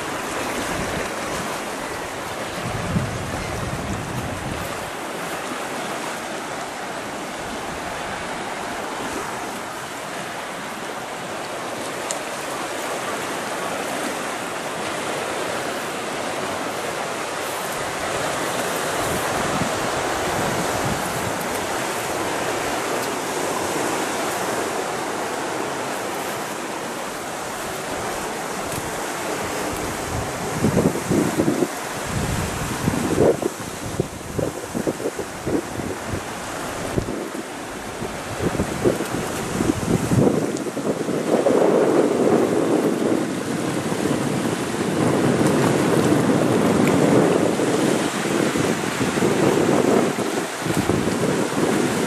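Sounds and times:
surf on a rocky shore: 0:00.0 - 0:52.0
wind through trees and grass: 0:00.0 - 0:52.0.

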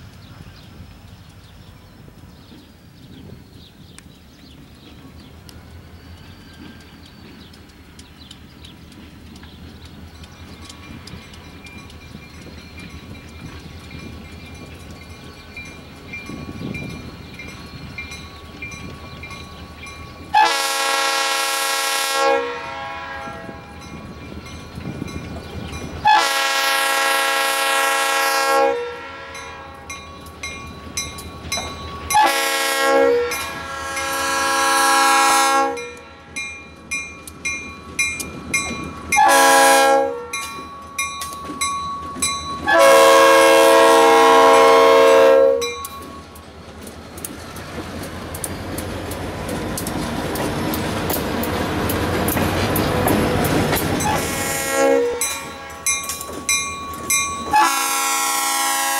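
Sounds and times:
locomotive engine running: 0:00.0 - 0:22.1, 0:29.3 - 0:58.9
train wheels clicking over rails: 0:00.0 - 0:22.1, 0:29.9 - 0:34.4, 0:45.4 - 0:58.4
locomotive air horn blasts: 0:20.3 - 0:23.8, 0:26.0 - 0:29.9, 0:32.2 - 0:36.4, 0:39.2 - 0:40.5, 0:42.6 - 0:45.9, 0:54.0 - 0:56.0, 0:57.5 - 0:58.9.

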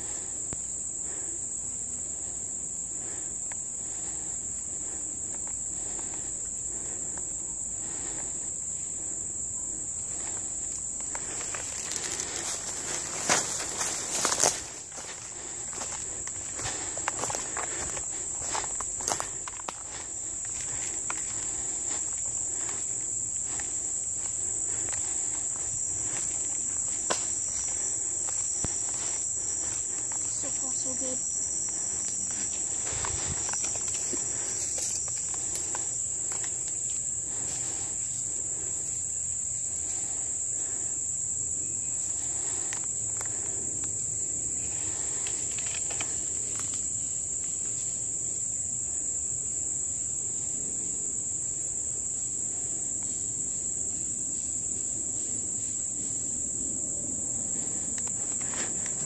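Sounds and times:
insects droning: 0:00.0 - 0:59.0
footsteps through dry leaves: 0:11.3 - 0:22.7.

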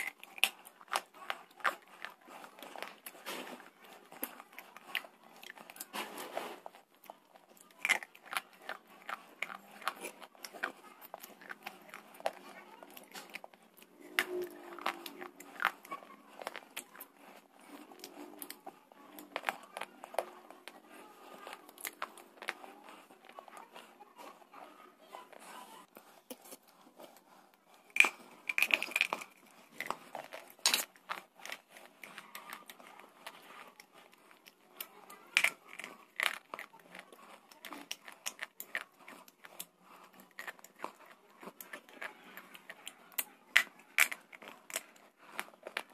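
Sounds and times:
crunchy chewing close up: 0:00.0 - 0:45.9.

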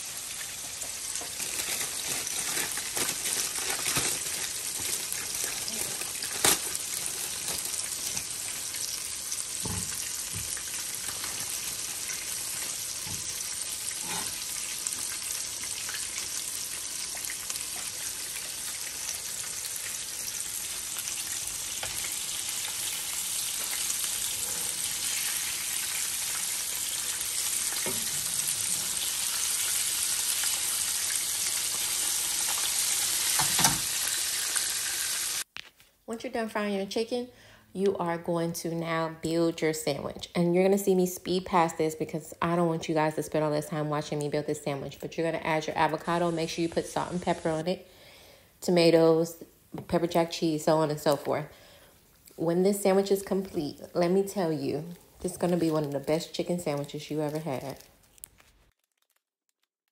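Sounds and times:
chicken sizzling in frying pan: 0:00.0 - 0:35.5.

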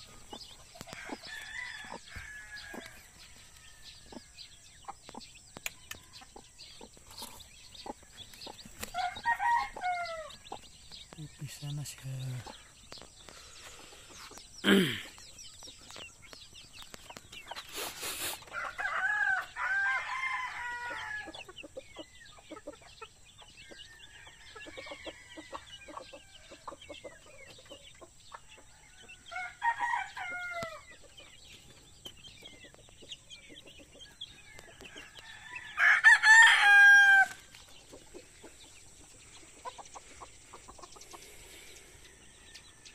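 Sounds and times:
adult chicken calls: 0:00.0 - 0:10.6, 0:33.8 - 0:42.9
chicks peeping: 0:00.0 - 0:42.9
rooster crowing: 0:00.9 - 0:03.0, 0:09.0 - 0:10.3, 0:18.6 - 0:21.3, 0:29.3 - 0:30.8, 0:35.0 - 0:37.4.

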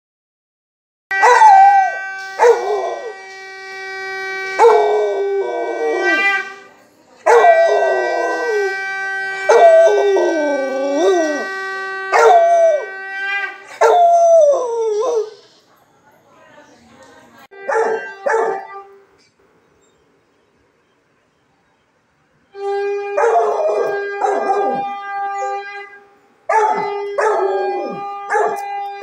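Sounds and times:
conch shell blowing: 0:01.1 - 0:15.7, 0:17.4 - 0:20.0, 0:22.4 - 0:29.0
dog howling: 0:01.2 - 0:03.2, 0:04.6 - 0:06.5, 0:07.2 - 0:08.8, 0:09.4 - 0:15.5, 0:17.7 - 0:18.9, 0:23.0 - 0:25.9, 0:26.5 - 0:28.6.

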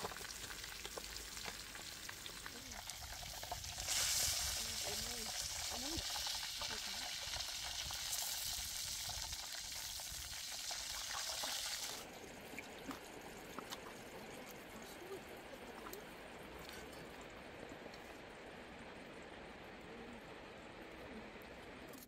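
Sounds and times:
meat sizzling in hot oil: 0:00.0 - 0:12.1
outdoor hiss: 0:00.0 - 0:13.5.

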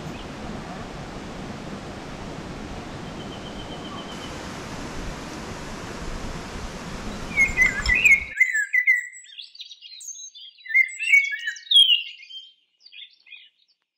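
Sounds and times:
steady rushing noise: 0:00.0 - 0:08.4
songbirds chirping and trilling: 0:00.0 - 0:13.9.

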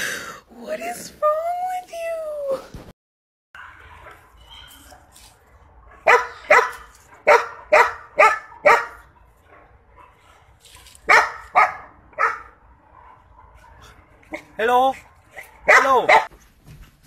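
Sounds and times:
dog barking: 0:03.6 - 0:05.2, 0:05.8 - 0:16.3.

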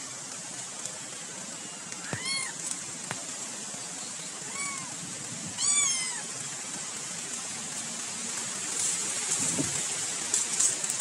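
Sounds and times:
steady hiss: 0:00.0 - 0:11.0
cat meowing: 0:02.0 - 0:02.6, 0:04.5 - 0:04.9, 0:05.6 - 0:06.3.

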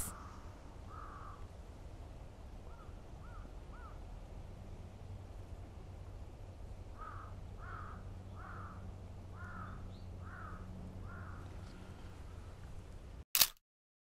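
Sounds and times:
crow cawing: 0:00.0 - 0:01.4, 0:02.7 - 0:04.0, 0:07.0 - 0:11.6
low background rumble: 0:00.0 - 0:13.2.

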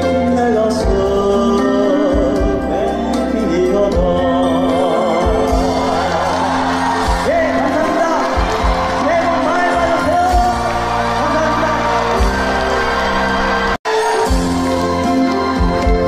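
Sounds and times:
man singing: 0:00.0 - 0:08.4
band accompaniment: 0:00.0 - 0:16.0.

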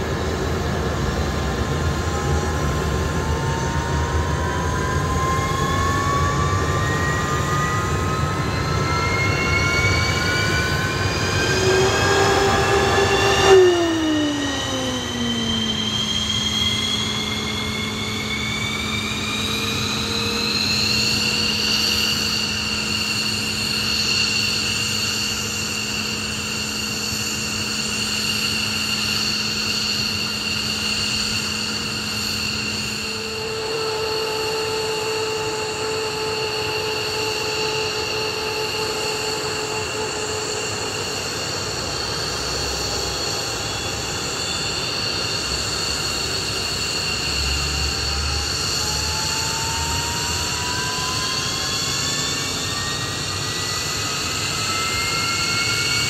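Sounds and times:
engine spooling up: 0:00.0 - 0:56.0
jet engine turbine whine: 0:00.0 - 0:56.0.

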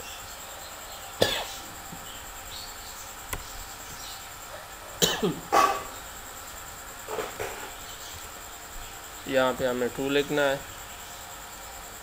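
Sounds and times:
man coughing: 0:05.0 - 0:05.8.

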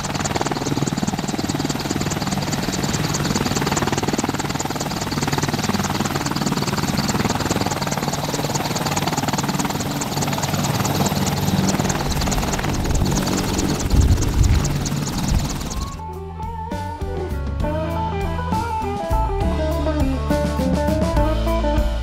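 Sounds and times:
helicopter engine drone: 0:00.0 - 0:16.0
helicopter rotor chopping: 0:00.0 - 0:16.0.

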